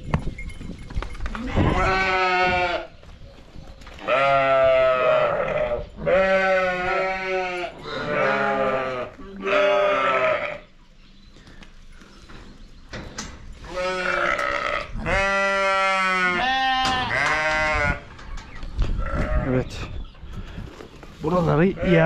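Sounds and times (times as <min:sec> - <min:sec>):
sheep bleating: 0:01.5 - 0:02.9, 0:04.0 - 0:10.7, 0:13.7 - 0:18.0.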